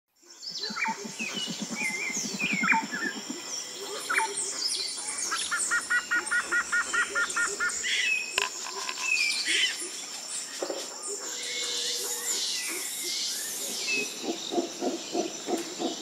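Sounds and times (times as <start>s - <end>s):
birds chirping: 0.4s - 16.0s
low rapid pulsing bird call: 0.6s - 8.2s.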